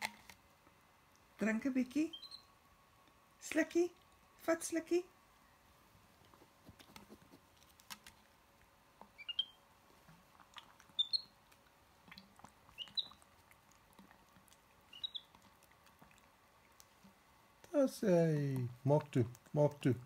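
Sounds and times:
monkey squeaking: 2.1 - 2.5, 9.2 - 9.6, 11.0 - 11.4, 12.8 - 13.2, 14.9 - 15.4
monkey drinking from bottle: 9.0 - 17.2.

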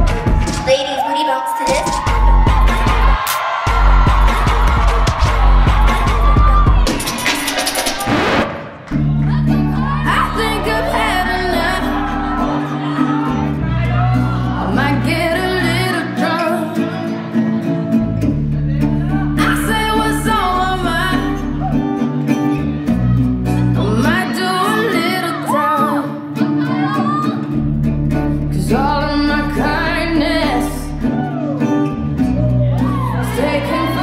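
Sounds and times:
person singing: 9.3 - 27.6, 28.3 - 34.0.

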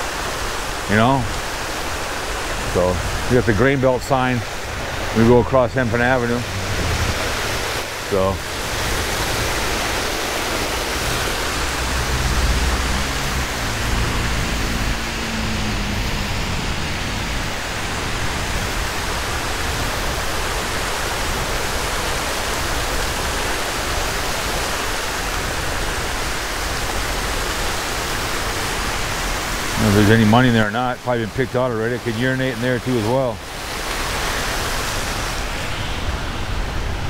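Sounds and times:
fountain water rushing: 0.0 - 37.0
low rumble: 4.4 - 8.5.

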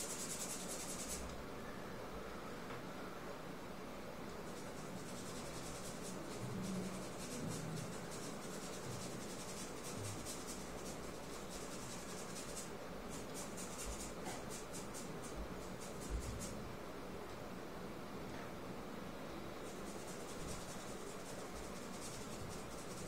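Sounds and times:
paintbrush scratching strokes: 0.0 - 1.3, 4.4 - 16.6, 19.6 - 23.0.

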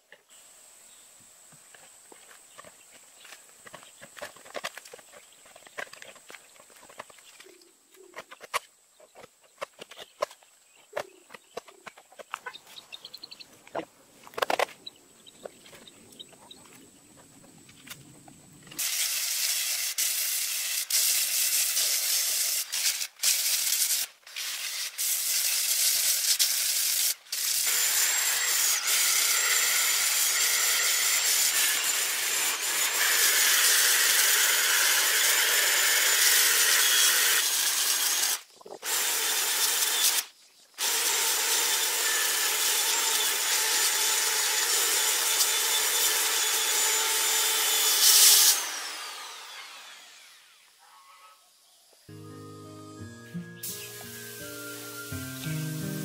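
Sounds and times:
electric drill sanding hull: 23.7 - 50.8.

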